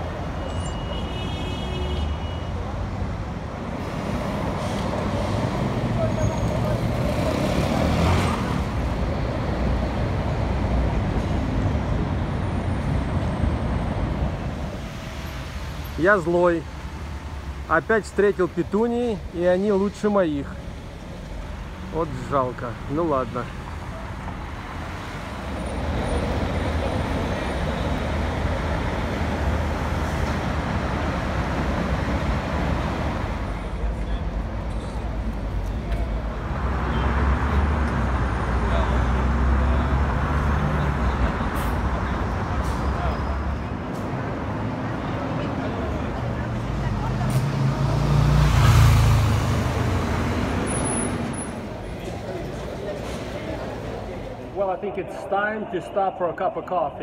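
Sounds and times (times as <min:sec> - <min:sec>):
city street traffic: 0:00.0 - 0:57.0.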